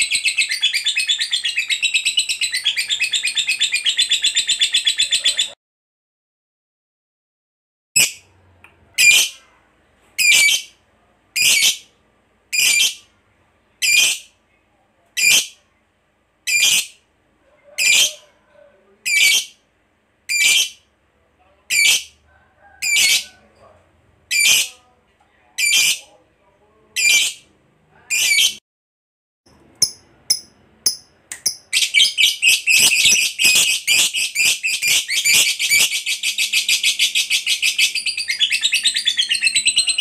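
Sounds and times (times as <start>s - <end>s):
lovebird calling: 0.0s - 5.6s, 29.8s - 40.0s.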